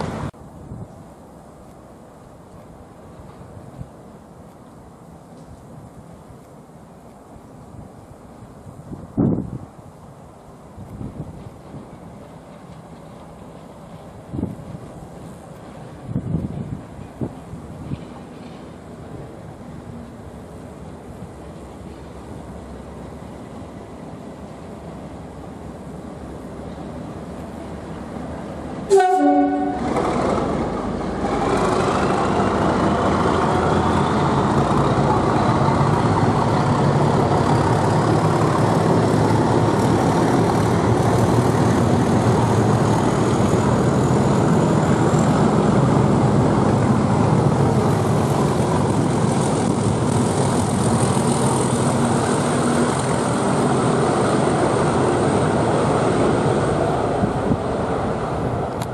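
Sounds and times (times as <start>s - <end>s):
train rumbling past: 0.0s - 58.9s
train horn blast: 28.9s - 30.0s.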